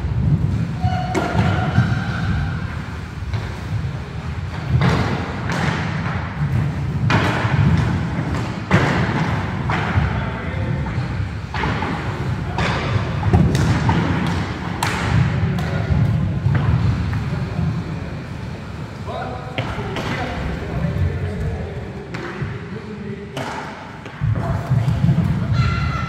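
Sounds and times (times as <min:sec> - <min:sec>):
skate wheels rolling on wood: 0:00.0 - 0:19.0.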